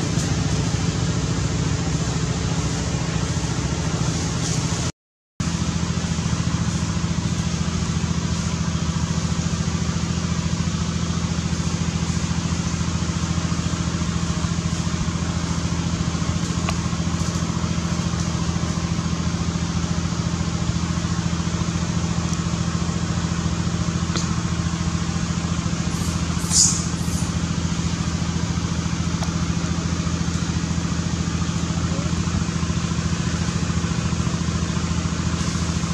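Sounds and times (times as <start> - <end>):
low mechanical hum: 0.0 - 35.9
high-pitched squeal: 25.8 - 27.6.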